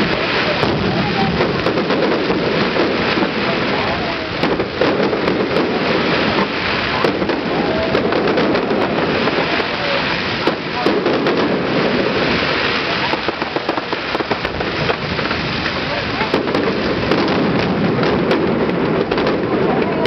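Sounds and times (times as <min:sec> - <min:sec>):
fireworks bangs and crackles: 0:00.0 - 0:20.0
voices of onlookers: 0:00.0 - 0:20.0.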